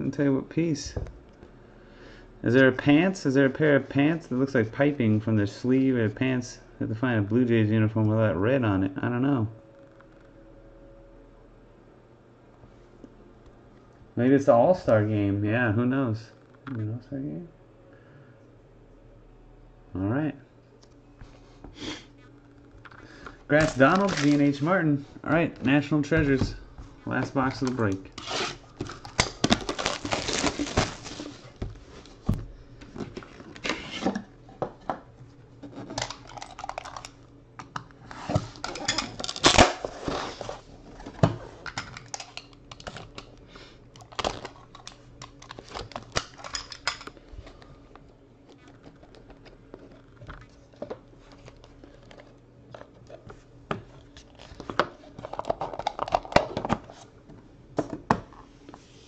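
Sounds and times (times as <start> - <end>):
crinkling plastic: 22.6 - 24.6, 27.5 - 32.2, 44.0 - 46.5
shrink wrap tearing: 23.5 - 24.6, 27.5 - 31.4, 39.2 - 40.1.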